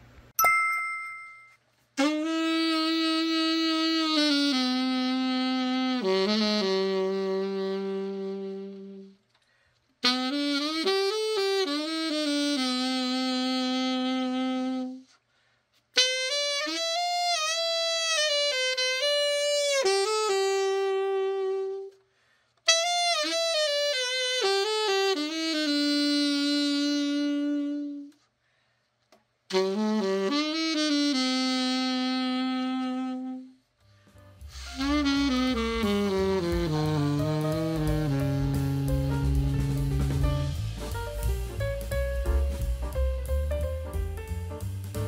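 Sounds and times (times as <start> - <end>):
alto saxophone solo: 2.0 - 15.3, 15.9 - 28.4, 29.5 - 45.0.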